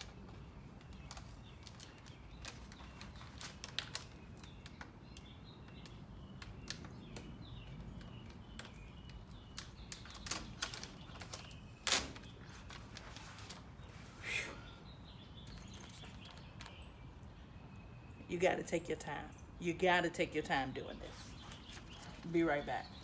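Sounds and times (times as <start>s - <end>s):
faint bird chirps: 0.0s - 18.3s.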